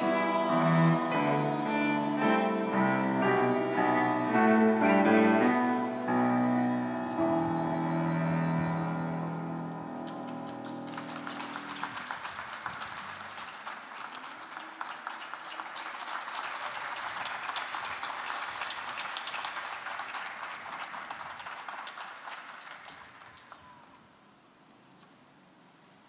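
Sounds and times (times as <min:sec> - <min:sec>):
audience applauding: 0:09.9 - 0:24.0.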